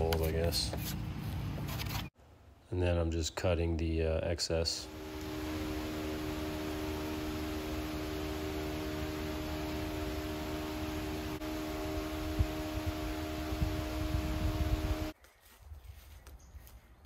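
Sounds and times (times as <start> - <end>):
mechanical hum with hiss: 4.8 - 15.2.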